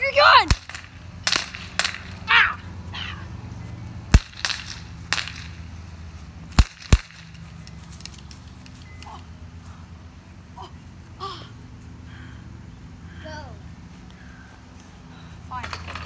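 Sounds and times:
gunshots: 0.5s - 2.2s, 4.1s - 5.6s, 6.5s - 7.3s.

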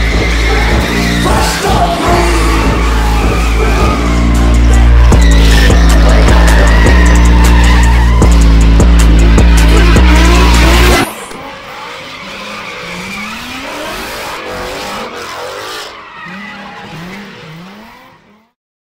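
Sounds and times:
loud music: 0.0s - 11.3s
car engines revving: 0.0s - 18.6s
tyres squealing and skidding: 0.0s - 18.6s.

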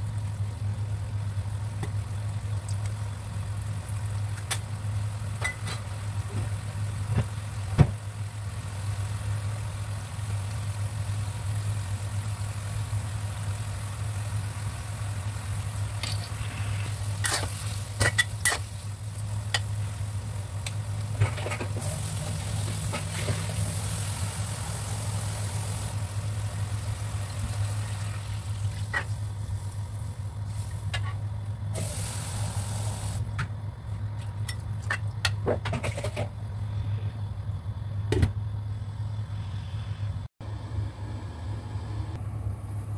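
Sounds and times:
beef sizzling in a wok: 0.0s - 33.3s.

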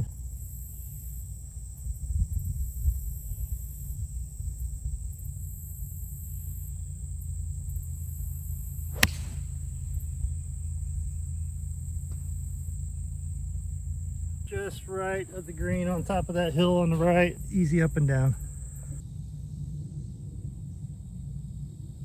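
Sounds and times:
high insect drone: 0.0s - 22.0s
low rumble: 1.6s - 22.0s
golf club striking ball: 8.8s - 12.8s.

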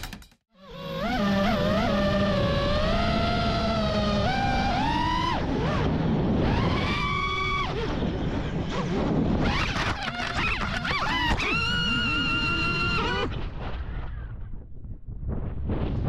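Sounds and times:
drone motors whining: 0.6s - 13.4s.

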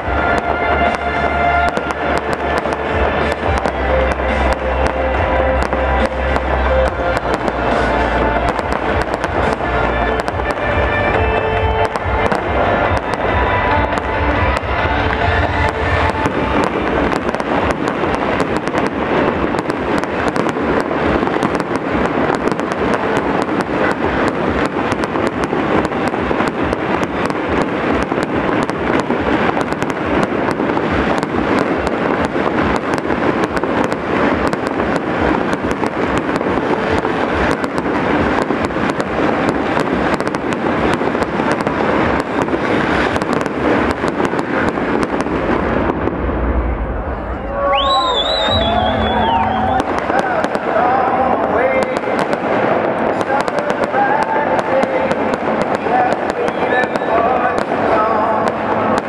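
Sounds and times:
fireworks bangs and pops: 0.0s - 47.0s, 47.6s - 59.0s.

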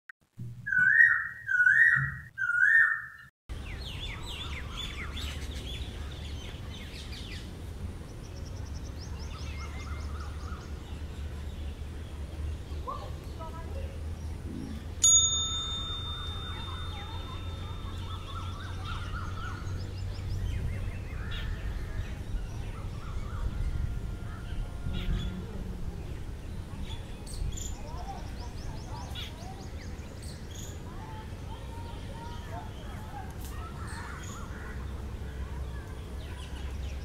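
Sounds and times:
bird whistling song: 0.6s - 5.7s
bell-like ding: 15.0s - 19.2s.

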